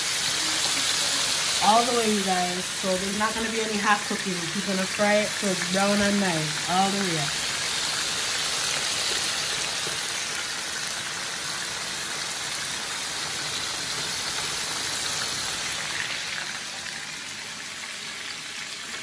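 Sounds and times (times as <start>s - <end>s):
chicken sizzling in a frying pan: 0.0s - 19.0s.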